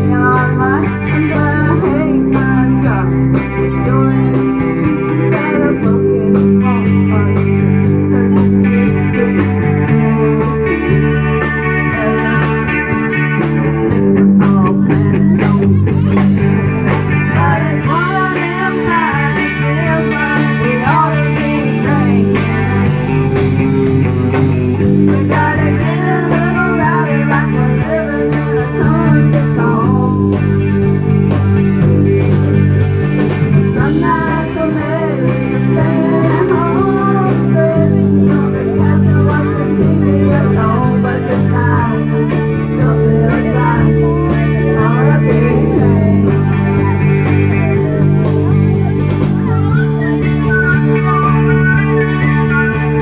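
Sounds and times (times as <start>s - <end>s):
country band playing: 0.0s - 53.0s
electric guitar lead bending pitch: 0.0s - 53.0s.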